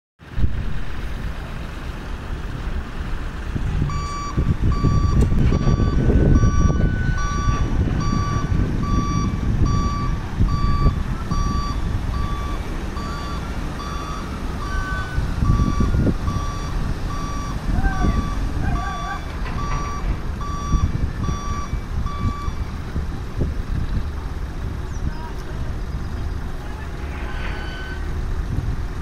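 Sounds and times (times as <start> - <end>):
diesel engine rumbling: 0.2 - 29.0
reversing alarm beeping: 3.8 - 22.8, 27.0 - 28.2.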